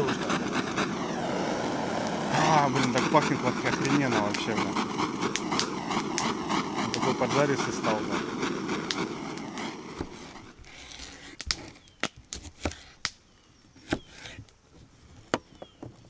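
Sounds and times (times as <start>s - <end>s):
hiss: 0.0s - 11.7s.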